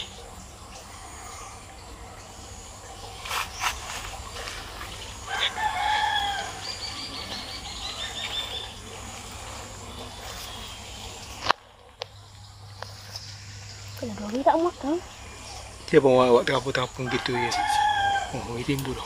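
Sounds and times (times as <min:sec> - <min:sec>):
low background hum: 0:00.0 - 0:19.0
rooster crowing: 0:05.2 - 0:07.1, 0:17.0 - 0:18.8.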